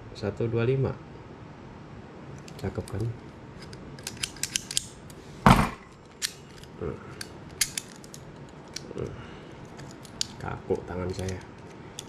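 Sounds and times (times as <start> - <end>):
loud knock: 5.5 - 5.8.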